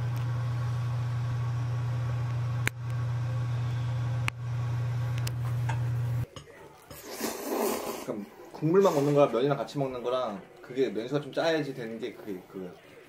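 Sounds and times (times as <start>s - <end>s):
kitchen appliance humming: 0.0s - 6.3s.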